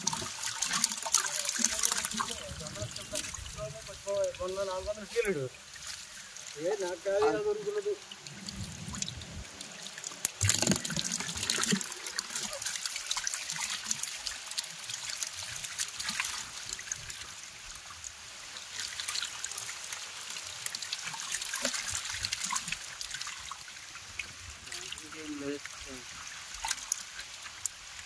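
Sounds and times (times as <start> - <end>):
small fish flapping in water: 0.0 - 6.5, 8.1 - 17.3, 18.5 - 23.8
hands splashing through water: 10.2 - 14.0.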